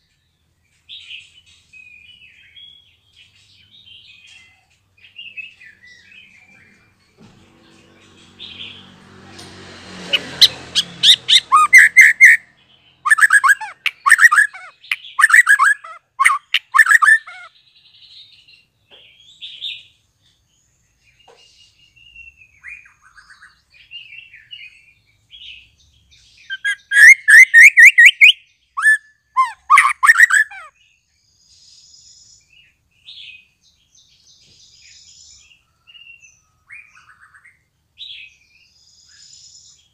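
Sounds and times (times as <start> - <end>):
bird singing stuttering notes: 10.1 - 17.5, 26.5 - 30.7
short bird calls: 10.1 - 17.6, 26.5 - 30.8.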